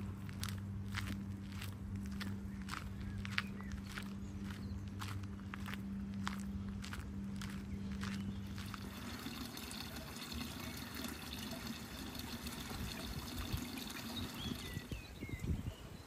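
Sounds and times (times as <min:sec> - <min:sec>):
water trickling: 0:08.8 - 0:15.0.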